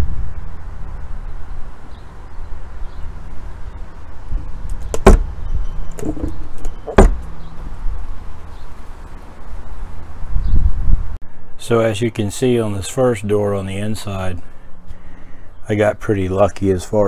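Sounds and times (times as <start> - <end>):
hand knocking on door: 6.9 - 7.2.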